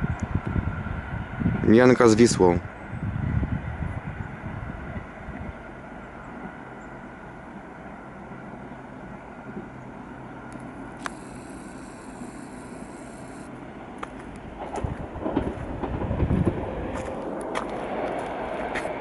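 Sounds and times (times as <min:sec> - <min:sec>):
distant train rumble: 0:00.0 - 0:19.0
high thin whine: 0:10.5 - 0:13.6.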